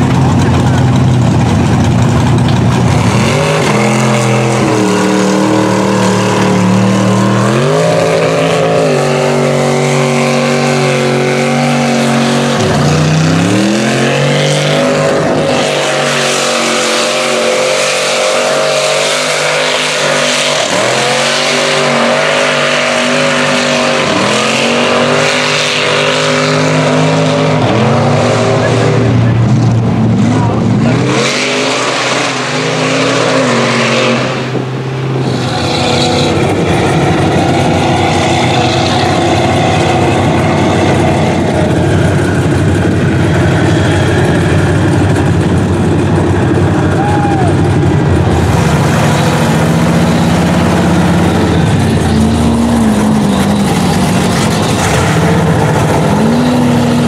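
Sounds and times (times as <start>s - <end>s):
tires churning through mud: 0.0s - 57.0s
truck engine revving: 0.0s - 57.0s.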